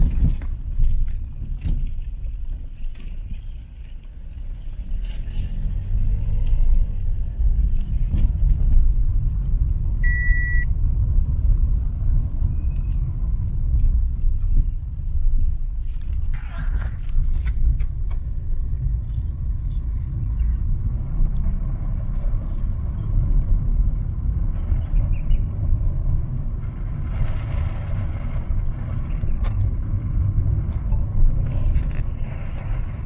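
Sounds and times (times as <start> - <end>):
car cabin engine rumble: 0.0 - 33.0
short electronic beep: 10.0 - 10.7.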